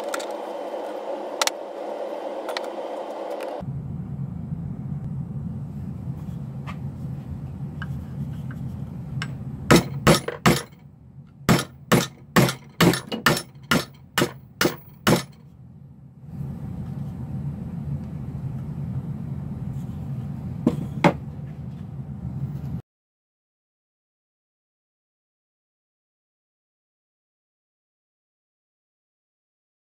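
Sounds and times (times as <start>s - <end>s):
hammer striking nail: 9.2s - 10.8s, 11.5s - 15.4s.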